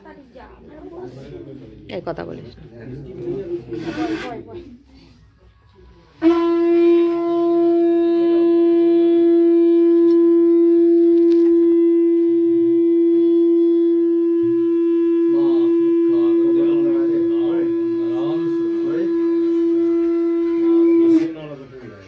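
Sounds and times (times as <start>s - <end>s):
conch shell blown: 3.7s - 4.4s, 6.1s - 21.8s.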